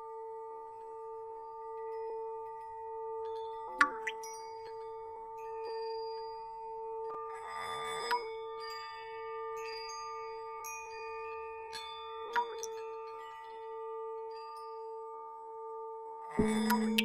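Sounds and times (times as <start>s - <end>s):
light metallic strikes: 16.4s - 17.0s
sustained chime tone: 16.4s - 17.0s.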